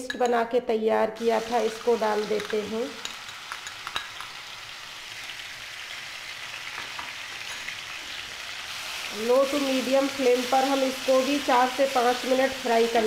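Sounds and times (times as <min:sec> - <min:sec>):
paste sizzling in hot oil: 0:01.2 - 0:13.0.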